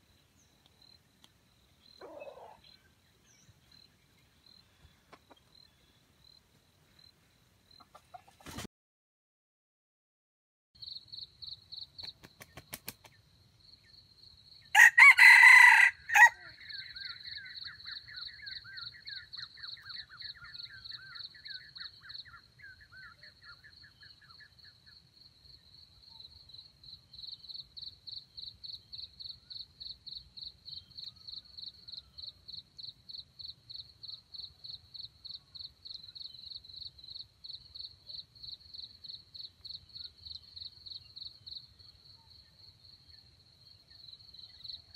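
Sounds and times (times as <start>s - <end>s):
rooster crowing: 14.7s - 16.6s.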